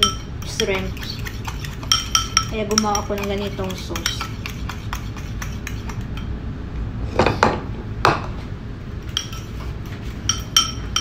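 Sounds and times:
metal spoon scraping ceramic bowl: 0:00.0 - 0:06.3, 0:09.1 - 0:11.0
spoon clinking on bowl: 0:00.0 - 0:06.3, 0:09.1 - 0:09.5, 0:10.2 - 0:11.0.

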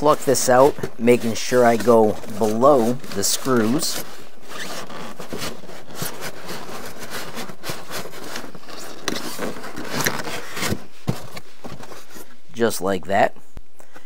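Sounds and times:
foam scraping and squeaking on metal: 0:00.0 - 0:10.8.

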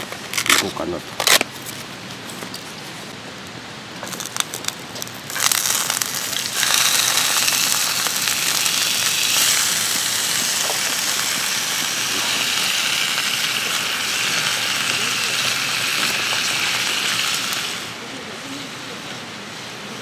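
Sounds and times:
plastic bag crinkling: 0:04.0 - 0:11.0
food sizzling in hot oil: 0:04.0 - 0:18.0.

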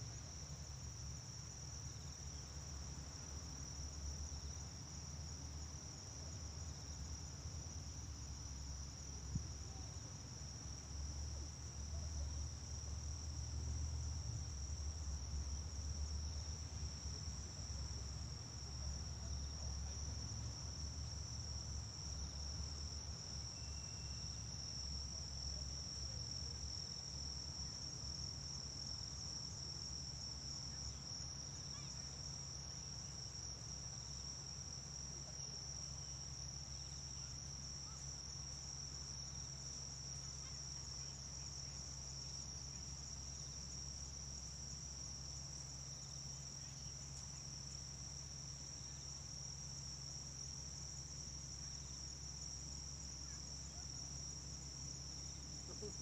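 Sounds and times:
insects trilling: 0:14.2 - 0:56.0.

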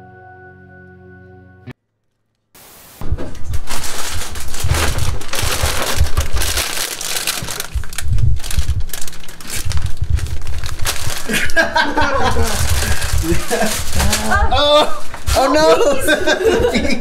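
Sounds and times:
rustling and crinkling: 0:02.0 - 0:15.9
low thumps: 0:03.0 - 0:11.2.

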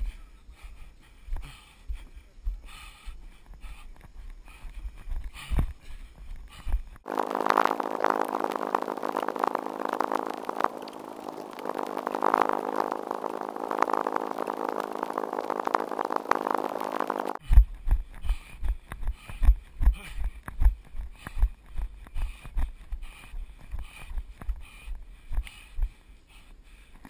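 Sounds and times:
sped-up mechanical buzz: 0:07.1 - 0:17.4.

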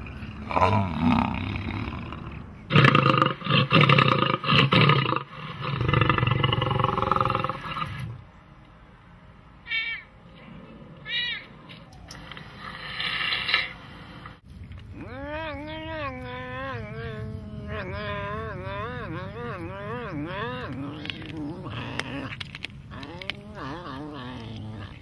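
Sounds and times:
lion roaring and growling: 0:00.0 - 0:08.2, 0:14.9 - 0:25.0
high cat calls: 0:09.6 - 0:10.2, 0:11.0 - 0:12.2.

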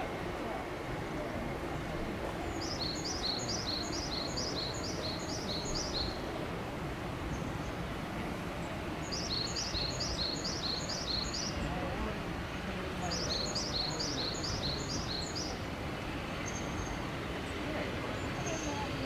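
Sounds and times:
steady outdoor background hum: 0:00.0 - 0:19.0
small songbird singing: 0:02.5 - 0:06.2, 0:09.0 - 0:11.7, 0:13.0 - 0:15.6.

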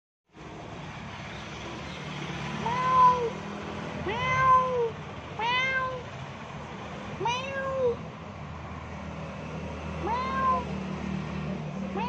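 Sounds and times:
cat meowing: 0:02.6 - 0:03.4, 0:04.1 - 0:06.1, 0:07.2 - 0:08.0, 0:10.0 - 0:10.7.

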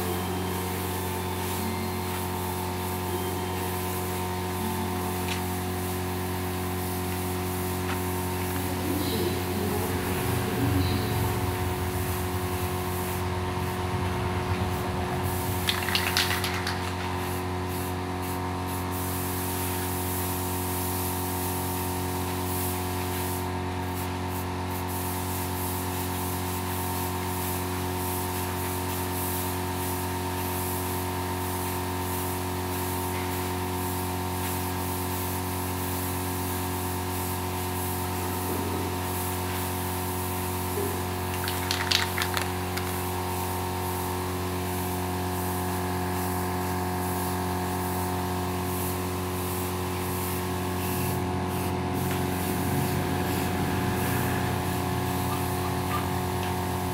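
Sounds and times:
spray paint can hissing: 0:00.0 - 0:56.9
steady mechanical hum: 0:00.0 - 0:56.9.

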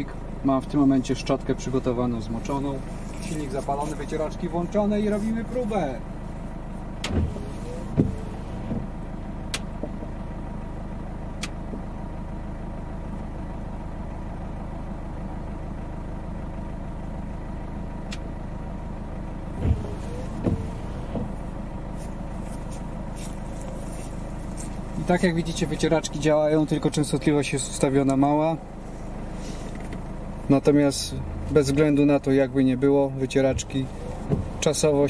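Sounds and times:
car engine idling: 0:00.0 - 0:35.0
windscreen wipers sweeping: 0:07.0 - 0:09.0, 0:19.5 - 0:25.2, 0:32.8 - 0:35.0.

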